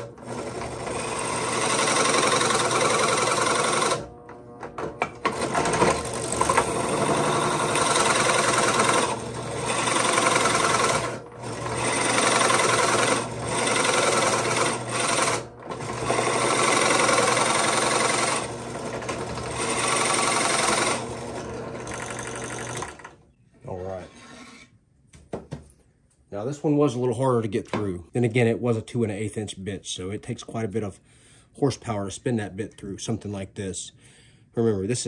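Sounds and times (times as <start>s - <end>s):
drill press cutting wood: 0.0s - 23.2s.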